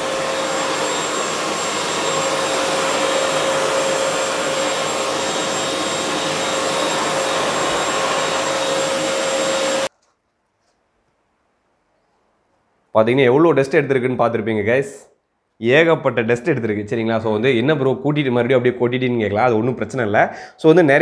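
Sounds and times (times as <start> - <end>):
vacuum cleaner running: 0.0 - 9.9.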